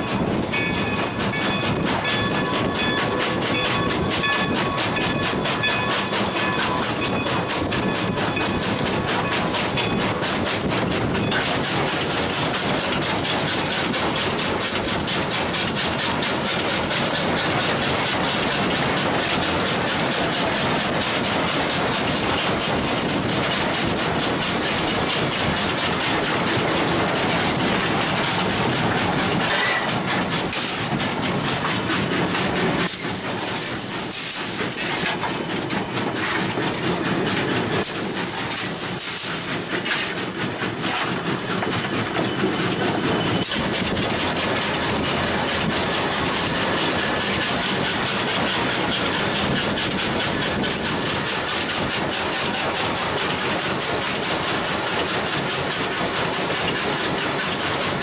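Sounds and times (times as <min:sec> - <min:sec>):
steam locomotive running: 0:00.0 - 0:58.0
high-pitched steam hiss bursts: 0:32.8 - 0:34.8, 0:37.8 - 0:39.8.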